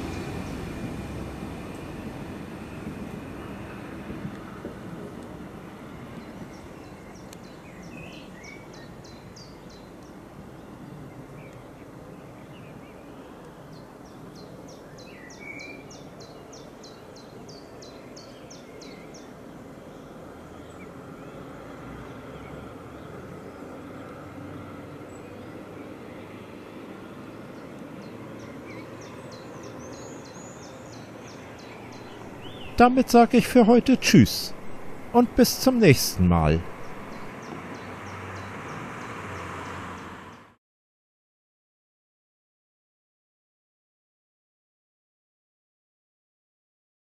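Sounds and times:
distant diesel train engine rumble: 31.9 - 37.3.

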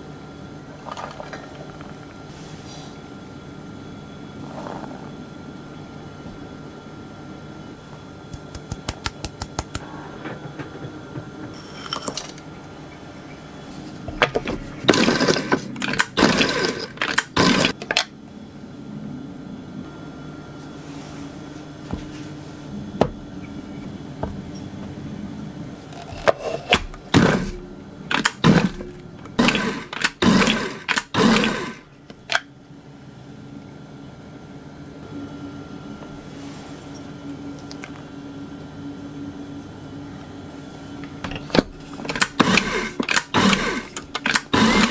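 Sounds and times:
food processor pulsing: 14.4 - 17.8, 26.0 - 31.9, 42.1 - 44.9.

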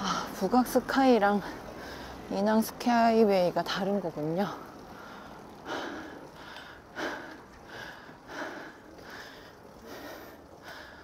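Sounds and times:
person breathing hard: 5.0 - 11.0.

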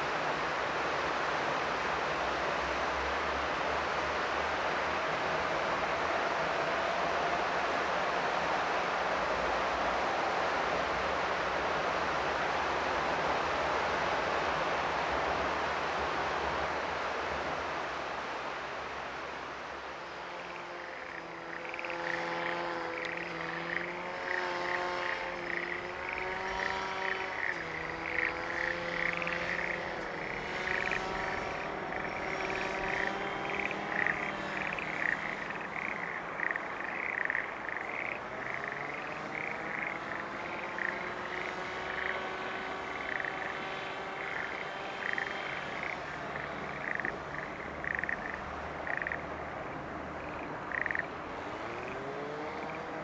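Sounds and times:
broad rushing noise: 0.0 - 53.0
low steady hum: 0.0 - 53.0
frogs croaking: 19.8 - 53.0.

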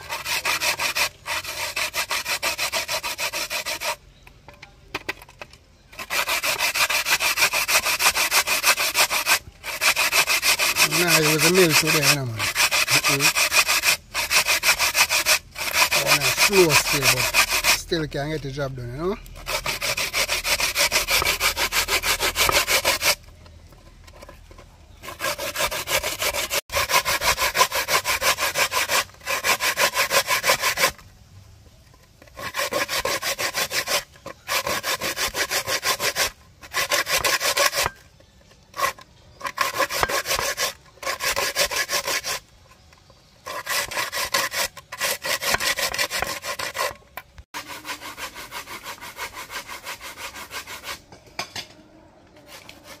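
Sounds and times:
fruit rasping on a grater: 0.0 - 4.0, 6.0 - 23.3, 24.1 - 31.0, 32.2 - 42.5, 43.2 - 47.0, 47.6 - 51.0.

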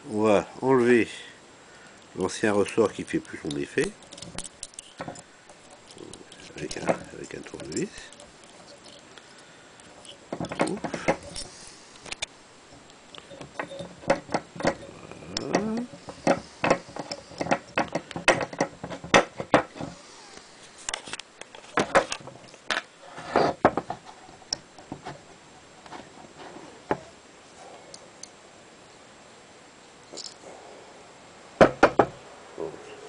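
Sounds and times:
screwdriver clicking on steel parts: 2.8 - 12.3.

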